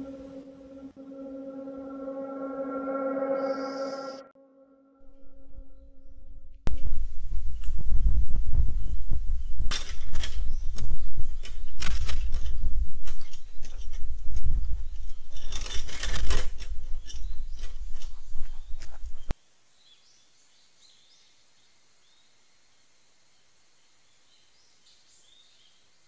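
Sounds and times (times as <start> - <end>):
wind rumble on microphone: 6.7 - 19.3.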